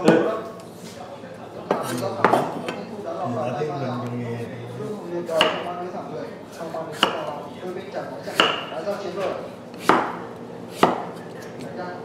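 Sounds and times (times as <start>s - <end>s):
knife chopping on wooden board: 5.3s - 5.7s, 6.9s - 7.3s, 8.2s - 8.8s, 9.8s - 11.2s.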